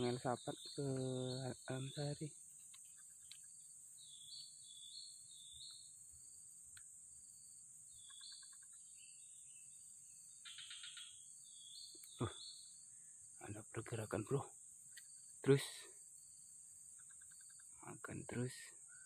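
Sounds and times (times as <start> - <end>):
insect chirping calls: 0.0 - 19.0
insects droning: 0.0 - 19.0.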